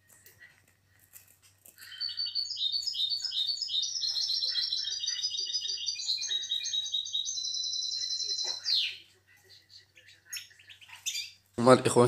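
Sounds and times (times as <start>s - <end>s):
goldfinch twittering song: 1.8s - 9.0s, 10.0s - 11.4s.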